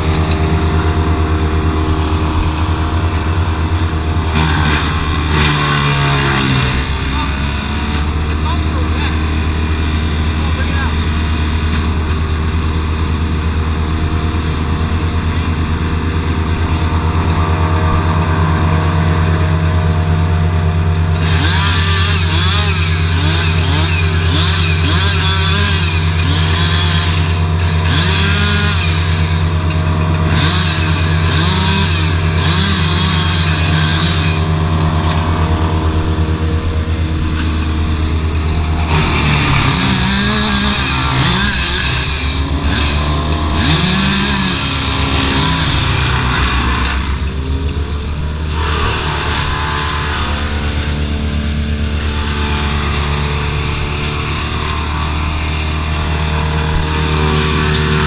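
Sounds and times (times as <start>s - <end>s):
heavy engine running: 0.0s - 58.0s.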